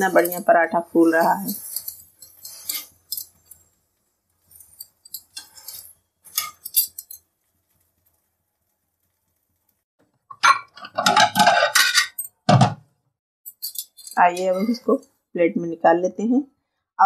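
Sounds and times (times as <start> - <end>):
tongs scraping a pan: 0.0 - 8.2, 10.3 - 12.3, 13.5 - 15.0.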